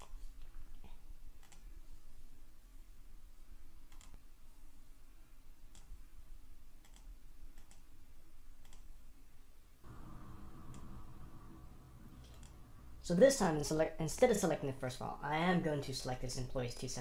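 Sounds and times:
computer mouse clicks: 0.0s - 1.7s, 3.9s - 4.2s, 5.7s - 6.0s, 6.8s - 7.9s, 8.6s - 9.0s, 12.2s - 12.6s
low steady hum: 0.0s - 17.0s.

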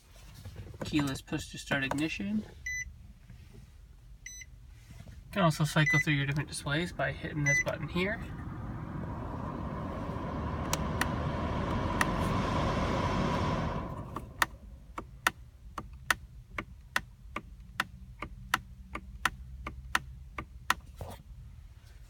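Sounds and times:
low steady hum: 4.2s - 15.3s
fan-like hiss: 4.7s - 14.9s.

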